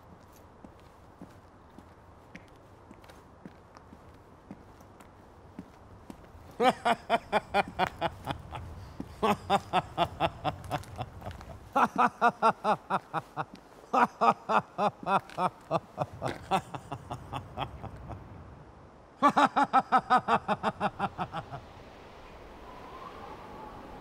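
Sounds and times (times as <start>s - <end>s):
man laughing: 6.6s - 18.4s, 19.2s - 21.6s.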